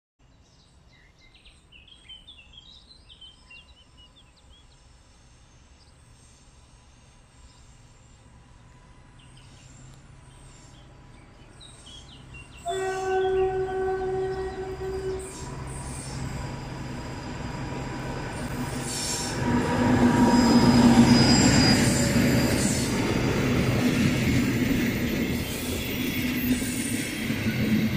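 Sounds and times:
train coaches rolling on rails: 0:08.5 - 0:27.9
locomotive engine: 0:09.8 - 0:27.9
locomotive horn blast: 0:12.6 - 0:15.8.

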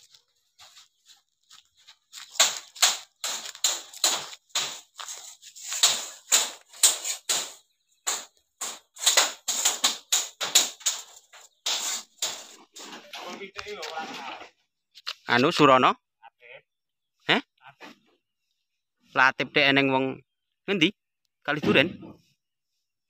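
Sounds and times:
footsteps crunching on leaves: 0:00.0 - 0:07.6.

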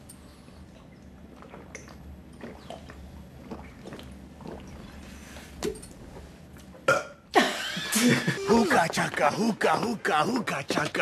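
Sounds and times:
people gulping and swallowing: 0:00.8 - 0:07.3.

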